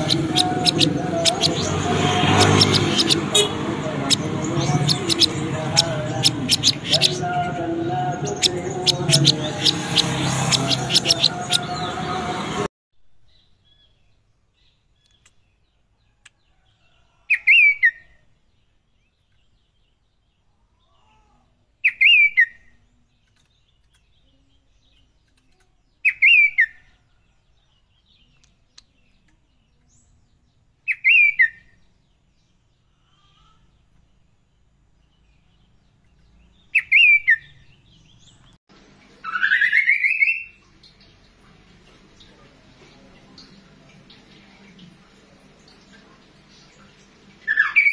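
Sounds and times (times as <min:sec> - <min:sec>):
songbird whistled call: 0:30.9 - 0:31.6, 0:36.8 - 0:37.5, 0:39.2 - 0:40.6.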